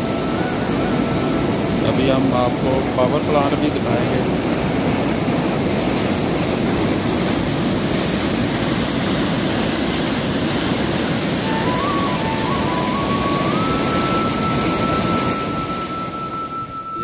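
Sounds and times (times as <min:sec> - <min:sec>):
water rushing through outfall: 0:00.0 - 0:17.0
background music melody: 0:11.3 - 0:17.0.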